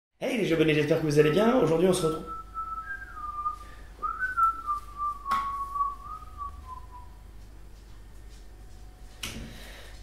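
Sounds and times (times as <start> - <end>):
person whistling a wavering note: 2.1 - 7.2.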